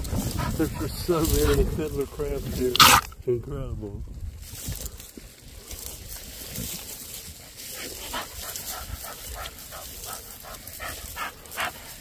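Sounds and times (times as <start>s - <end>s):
dog panting: 0.0s - 1.7s, 7.5s - 12.0s.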